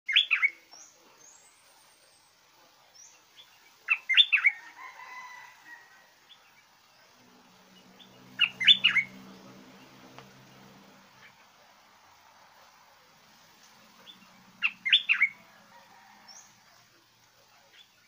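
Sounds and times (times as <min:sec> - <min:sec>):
bird singing whistled notes: 0:00.1 - 0:01.6, 0:03.9 - 0:04.6, 0:08.0 - 0:09.3, 0:14.0 - 0:15.4.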